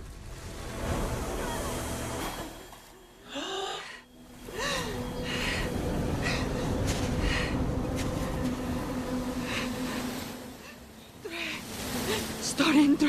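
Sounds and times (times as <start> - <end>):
woman breathing heavily: 3.2 - 8.2.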